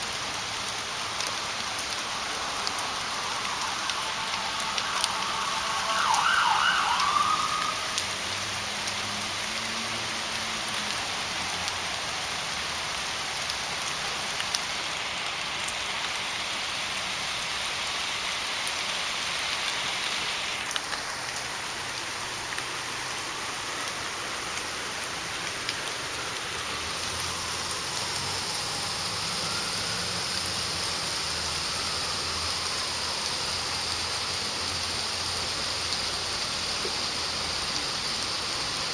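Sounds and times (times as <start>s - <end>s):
light rain on concrete: 0.0s - 38.9s
wavering wailing tone: 2.4s - 8.0s.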